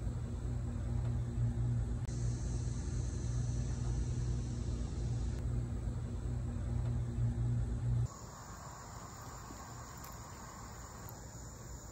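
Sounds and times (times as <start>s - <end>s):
steady low hum: 0.0s - 11.9s
crickets chirping: 2.1s - 6.5s, 8.0s - 11.9s.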